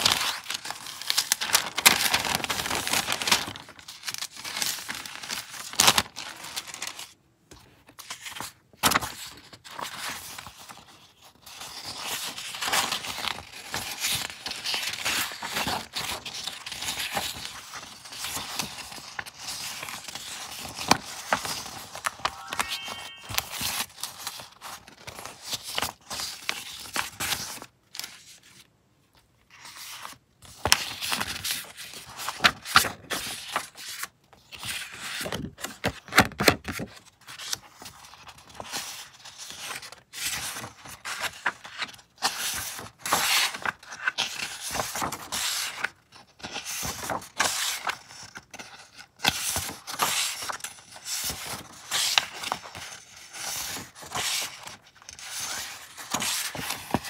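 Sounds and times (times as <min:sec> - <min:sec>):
paper sheets rustling: 0:00.0 - 0:28.6, 0:29.5 - 0:57.0.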